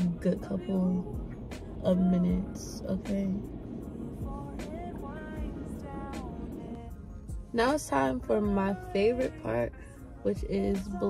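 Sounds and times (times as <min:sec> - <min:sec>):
background music melody: 0:00.0 - 0:11.0
steady low rumble: 0:00.0 - 0:11.0.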